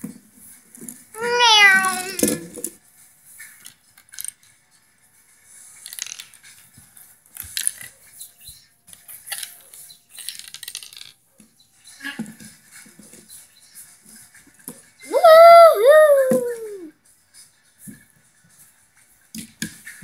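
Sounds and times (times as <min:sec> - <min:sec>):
plastic pieces clicking on wood: 0:10.2 - 0:11.2.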